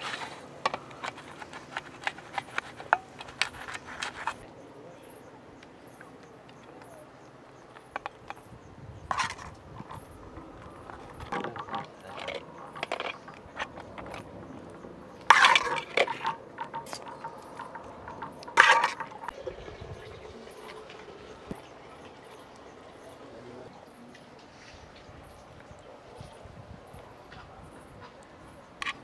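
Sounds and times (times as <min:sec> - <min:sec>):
sharp metal clanks: 0:15.2 - 0:19.4
metal spoon scraping a metal pan: 0:15.2 - 0:19.7.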